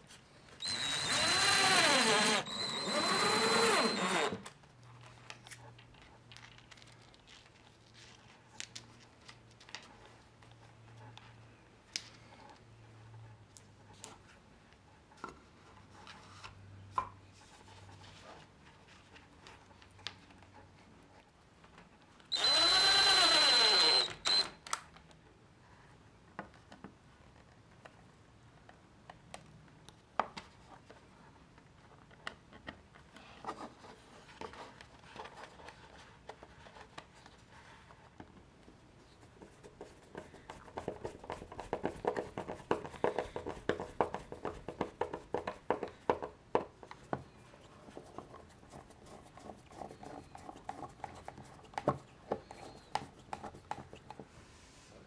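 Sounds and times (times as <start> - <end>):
screwdriver ticking and scraping: 0.6 - 4.4, 22.3 - 24.5
power screwdriver driving a screw: 0.6 - 4.5, 22.3 - 24.6.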